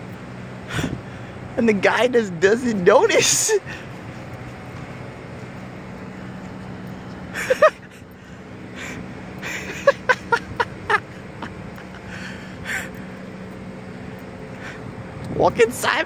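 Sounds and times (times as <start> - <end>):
outdoor traffic hum: 0.0 - 16.0
person giggling: 7.3 - 8.2, 9.4 - 12.2.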